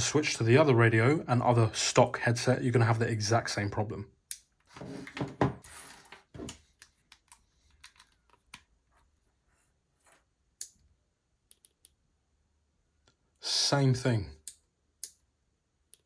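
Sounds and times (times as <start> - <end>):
rustling and plastic clicks: 5.9 - 9.2.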